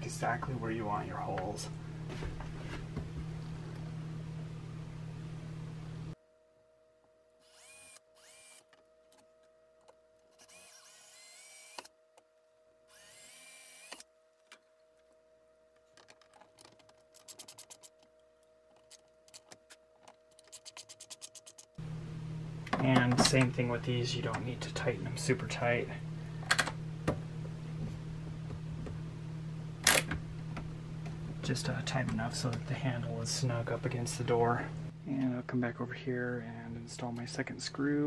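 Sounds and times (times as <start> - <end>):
cordless drill whining: 7.4 - 8.7, 10.4 - 11.9, 12.9 - 14.0.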